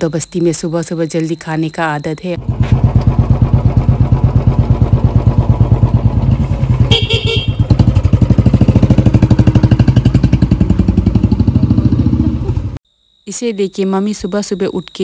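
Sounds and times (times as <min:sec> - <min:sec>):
motorbike engine idling: 0:02.4 - 0:12.8
horn beeps: 0:06.9 - 0:07.8.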